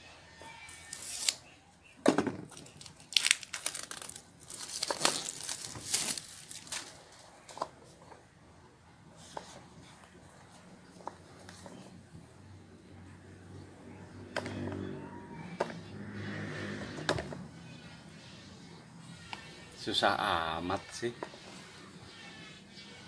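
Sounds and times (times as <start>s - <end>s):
plastic film crinkling: 0.7s - 1.4s, 2.5s - 7.6s
plastic wrap ripping: 0.7s - 1.4s, 2.5s - 7.2s.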